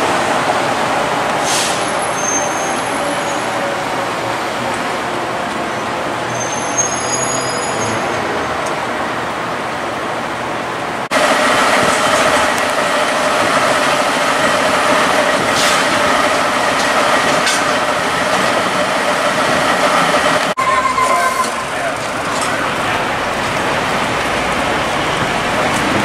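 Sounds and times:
street traffic: 0:00.0 - 0:26.0
fire engine engine running: 0:08.6 - 0:26.0.

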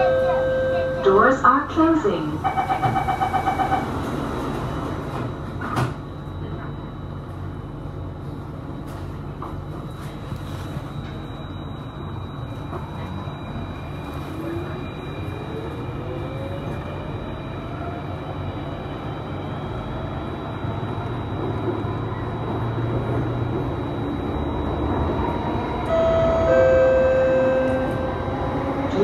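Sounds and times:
train running rumble: 0:00.0 - 0:29.0
train motor whine: 0:22.5 - 0:29.0.

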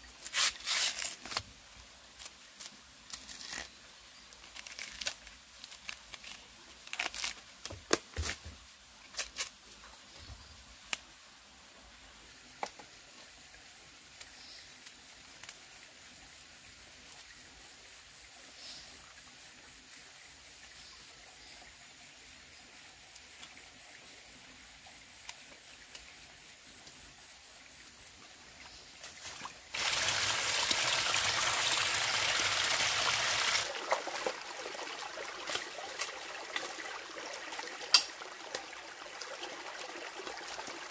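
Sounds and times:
plant stalk snapping and tearing: 0:04.5 - 0:08.0
forest stream rushing water: 0:28.6 - 0:40.9.

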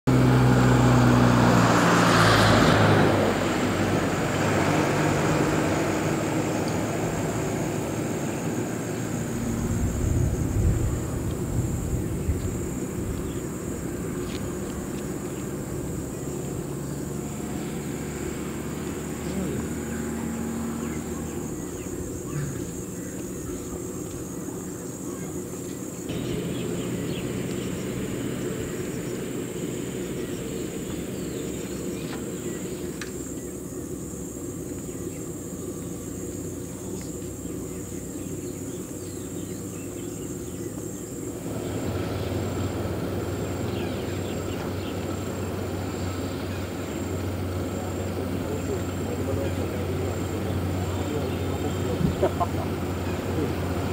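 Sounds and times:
faint insect chirping: 0:03.4 - 0:53.9
steady low rumble: 0:06.9 - 0:17.7.

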